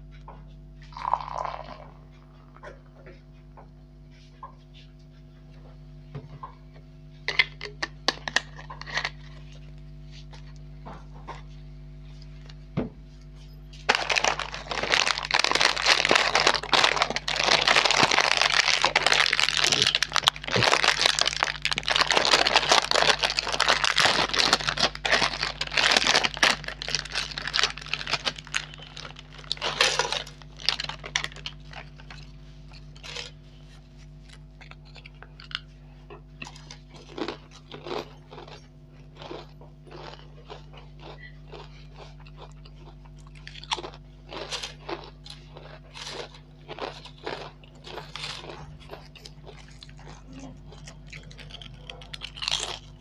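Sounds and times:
chip packet crinkling: 0:07.3 - 0:09.6, 0:13.9 - 0:33.4, 0:36.4 - 0:53.0.

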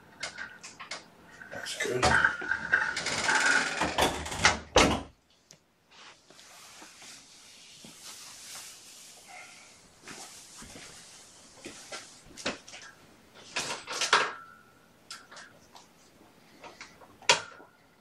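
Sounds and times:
faint hiss: 0:05.9 - 0:12.5.

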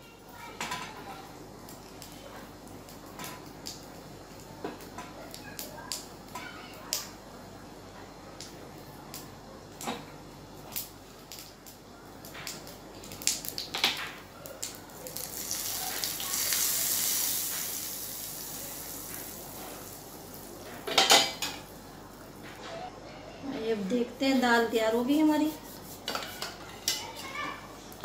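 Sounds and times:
hot oil sizzling: 0:00.4 - 0:07.3, 0:08.3 - 0:22.6.

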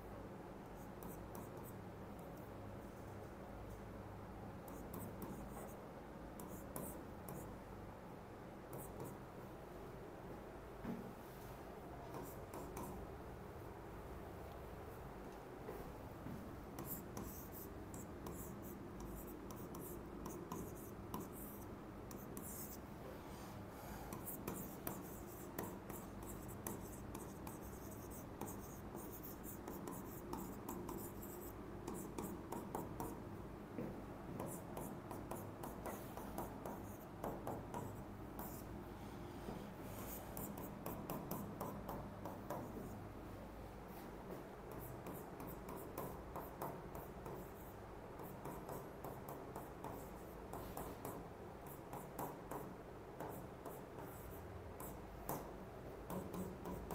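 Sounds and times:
steady low hum: 0:00.0 - 0:56.9
scratchy handwriting strokes: 0:16.8 - 0:22.8, 0:23.9 - 0:33.2.

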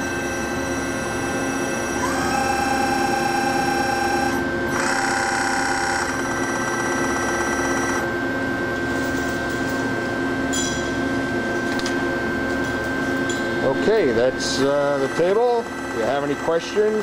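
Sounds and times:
servo motor whine: 0:00.0 - 0:08.8, 0:13.6 - 0:17.0
steady low hum: 0:00.0 - 0:17.0.

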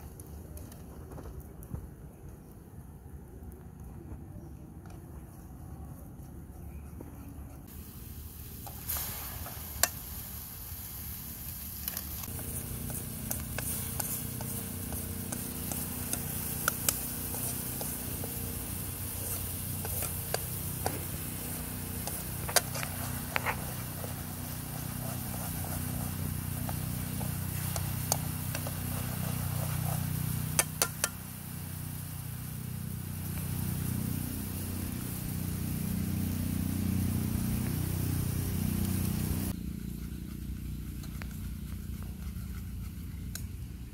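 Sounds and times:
sauce sizzling in wok: 0:07.7 - 0:39.6
sharp pops and clicks: 0:11.5 - 0:18.2, 0:30.5 - 0:31.2.

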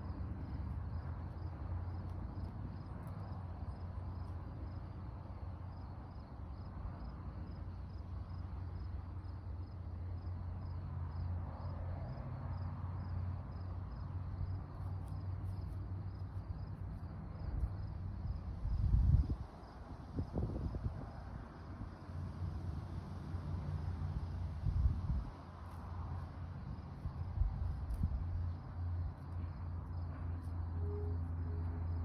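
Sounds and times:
cricket chirping: 0:00.0 - 0:32.0
wind buffeting microphone: 0:18.3 - 0:19.5, 0:20.1 - 0:21.2
steady low rumble: 0:24.5 - 0:32.0.

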